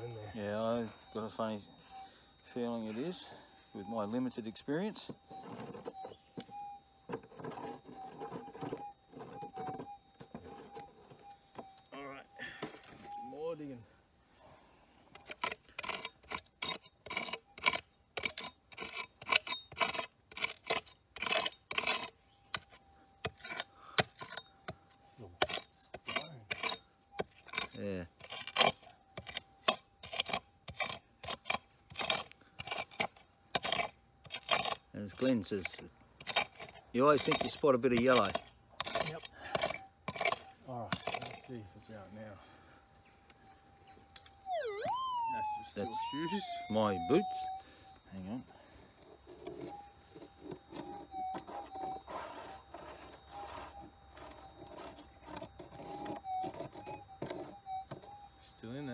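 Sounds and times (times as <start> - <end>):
digging clicks and scraping: 0.0 - 13.2, 15.0 - 58.9
metal detector hum: 0.0 - 13.8, 34.4 - 58.9
faint steady tone: 0.0 - 58.9.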